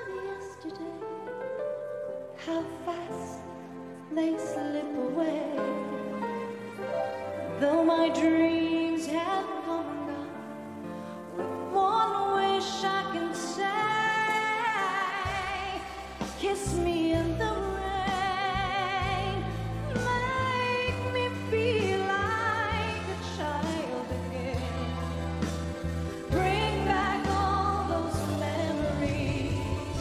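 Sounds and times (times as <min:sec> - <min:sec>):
woman singing pop ballad: 0:00.0 - 0:01.6, 0:02.3 - 0:06.5, 0:07.5 - 0:10.8, 0:11.4 - 0:30.0
band accompaniment: 0:05.2 - 0:30.0
bass line: 0:15.3 - 0:30.0.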